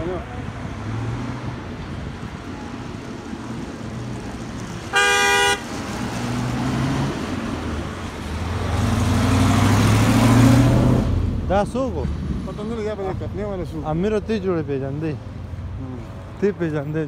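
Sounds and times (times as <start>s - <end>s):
road traffic passing: 0.0s - 17.0s
truck engine approaching: 0.0s - 17.0s
vehicle horn blast: 4.9s - 5.7s.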